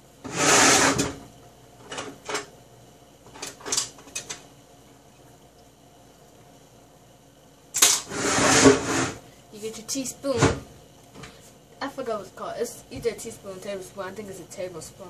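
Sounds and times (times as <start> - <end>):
kitchen items clicking and clattering: 3.3 - 4.4.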